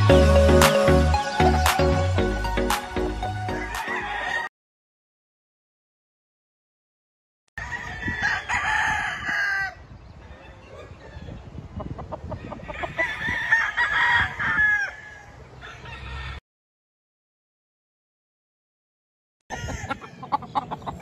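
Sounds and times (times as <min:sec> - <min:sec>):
rooster crowing: 0:03.5 - 0:04.5, 0:07.6 - 0:11.3, 0:12.6 - 0:16.4, 0:19.5 - 0:20.4
chicken clucking: 0:19.5 - 0:21.0.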